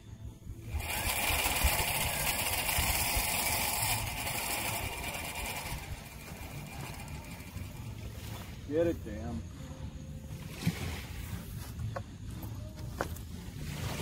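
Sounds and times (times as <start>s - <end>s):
reel clicker ratchet buzzing: 0.6s - 8.2s.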